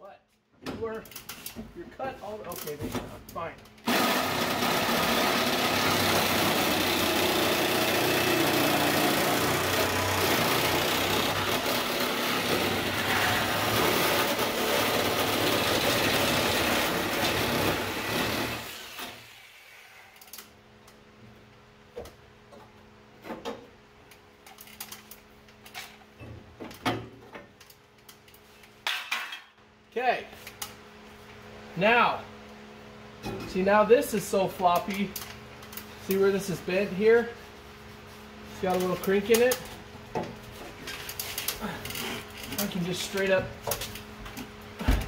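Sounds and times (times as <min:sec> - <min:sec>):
power saw cutting metal: 0:03.9 - 0:20.0.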